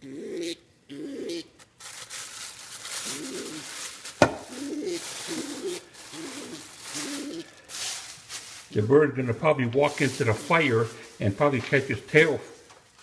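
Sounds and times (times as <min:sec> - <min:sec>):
pigeon cooing: 0:00.0 - 0:01.6, 0:02.9 - 0:07.7
soft rustling: 0:01.8 - 0:13.0
sharp knock: 0:04.2 - 0:04.5.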